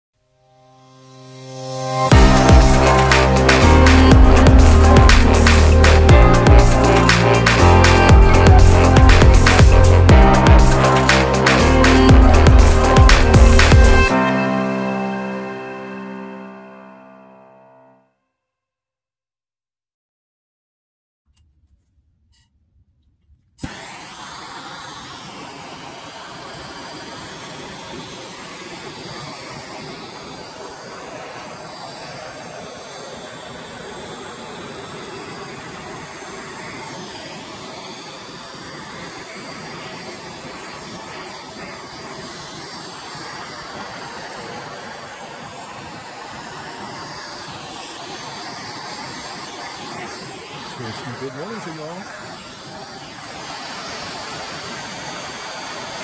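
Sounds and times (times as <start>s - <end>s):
gas torch hissing: 2.0s - 14.3s, 23.6s - 56.0s.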